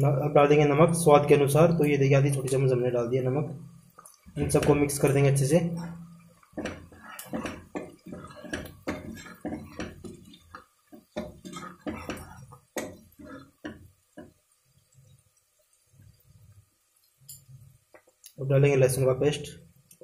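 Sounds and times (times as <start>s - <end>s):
metal spoon scraping pot: 4.2s - 14.3s.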